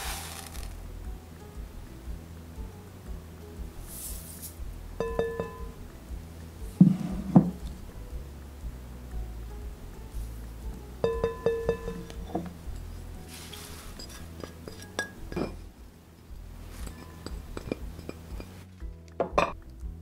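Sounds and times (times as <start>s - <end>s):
dishes clinking against glass bowl: 5.0s - 5.8s, 11.0s - 12.9s, 14.0s - 15.7s, 16.8s - 18.6s, 19.2s - 19.6s.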